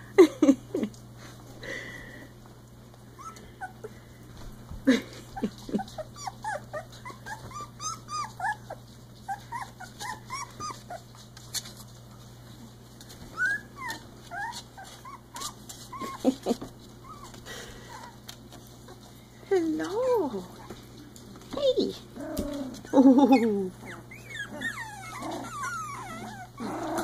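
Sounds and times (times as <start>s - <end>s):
puppies whimpering and squealing: 3.1s - 4.2s, 5.3s - 11.8s, 13.0s - 18.4s, 22.2s - 27.0s.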